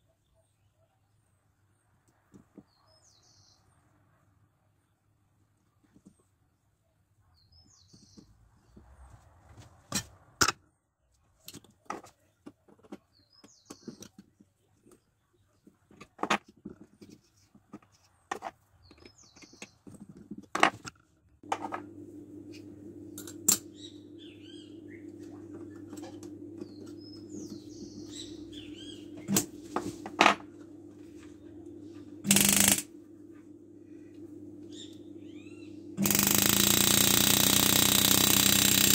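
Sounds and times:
steady low hum: 21.4s - 38.9s.

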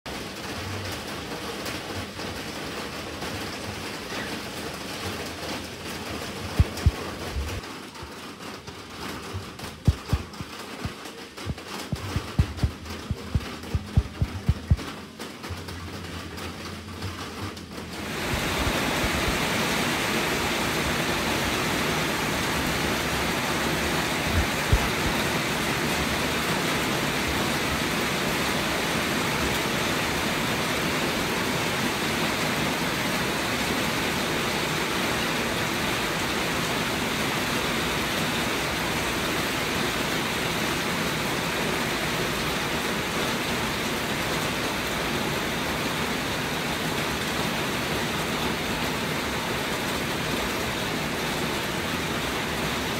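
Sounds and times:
steady rain: 0.0s - 52.9s
low thumps: 6.6s - 7.6s, 9.8s - 14.9s.

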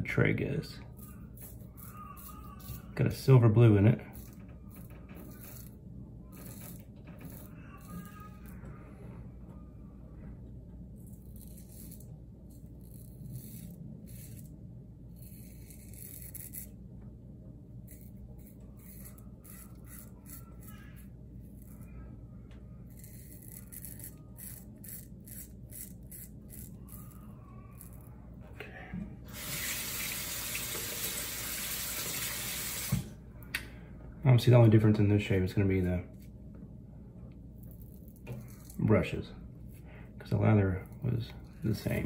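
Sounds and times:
razor scraping through beard: 0.9s - 3.4s, 4.1s - 8.4s, 11.0s - 16.8s, 17.8s - 21.9s, 22.8s - 27.2s, 37.6s - 42.0s
tap running at sink: 29.3s - 33.1s.

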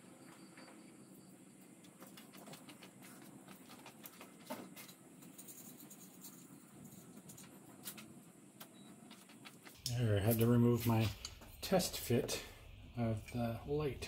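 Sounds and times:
hardware scratching: 1.9s - 8.2s.

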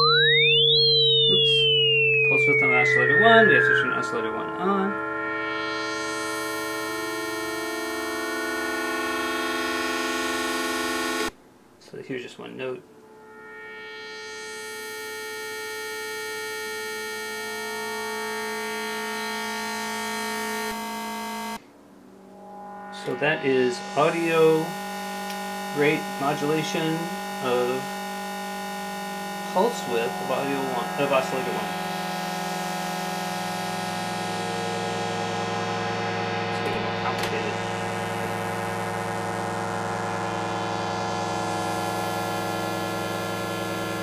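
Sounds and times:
sustained synthesizer note: 0.0s - 11.4s, 12.8s - 44.0s.

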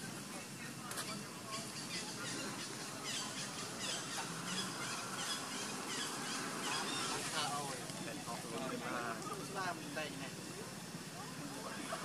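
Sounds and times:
high falling animal calls: 1.1s - 7.6s.

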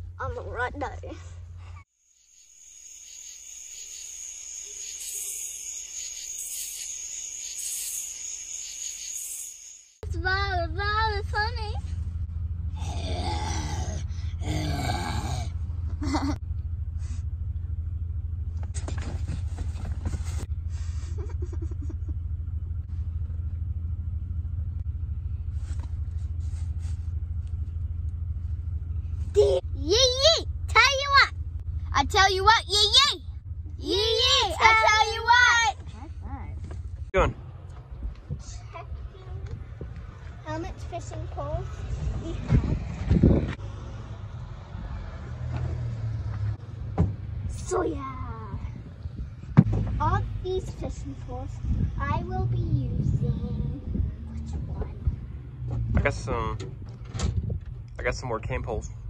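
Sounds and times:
car rumbling from inside cabin: 0.0s - 1.9s, 10.0s - 59.0s
insect chorus trilling: 2.0s - 10.0s.

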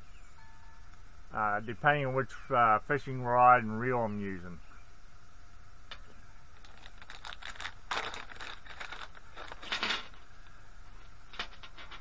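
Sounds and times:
plastic packets crinkling: 6.6s - 10.2s.

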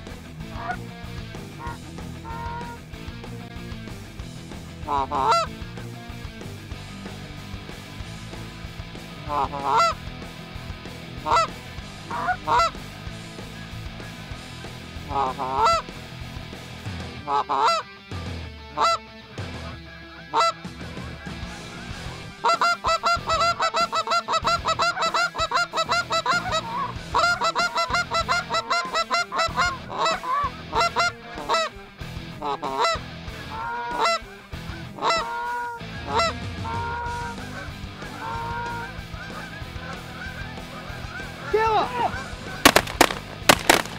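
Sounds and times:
geese honking: 0.4s - 0.9s, 1.5s - 2.9s, 4.8s - 5.6s, 9.2s - 10.1s, 11.2s - 14.4s, 15.0s - 16.0s, 17.2s - 17.9s, 18.8s - 43.9s.

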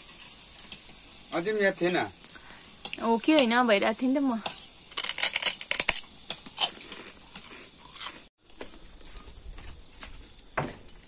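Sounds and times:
crunchy snack being chewed: 4.9s - 10.4s.

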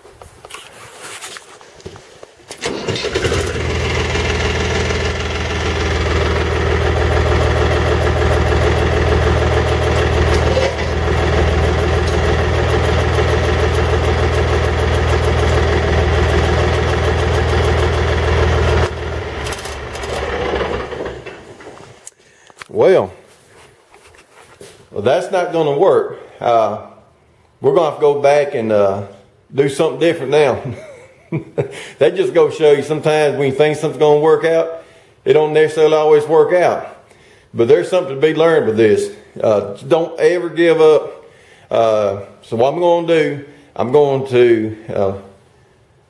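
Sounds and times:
tractor engine running: 2.6s - 21.8s.

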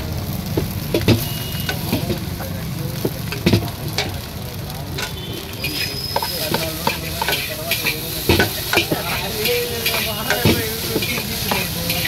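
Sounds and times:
frying sizzle: 0.0s - 12.0s
metal spatula scraping a wok: 5.0s - 12.0s.

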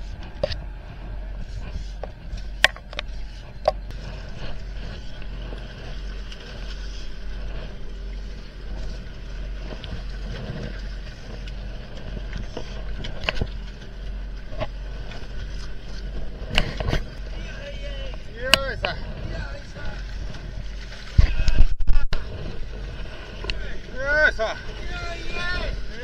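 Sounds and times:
boat engine droning: 0.0s - 26.0s.

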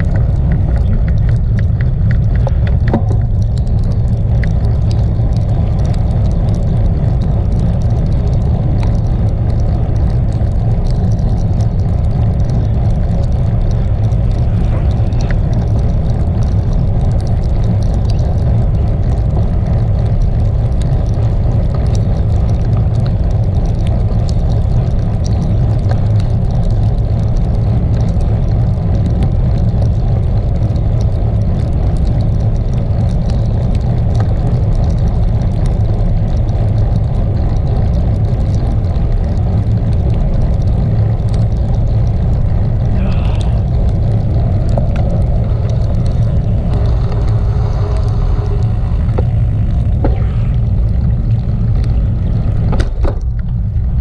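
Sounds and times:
wind buffeting microphone: 0.0s - 54.0s
tyres hissing on wet asphalt: 38.8s - 52.8s.

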